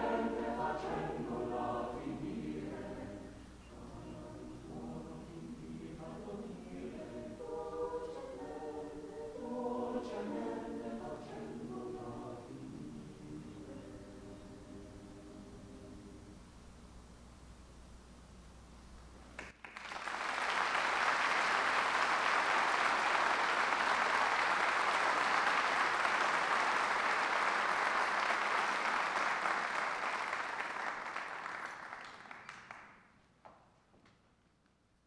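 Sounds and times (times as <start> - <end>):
audience applauding: 19.4 - 33.2.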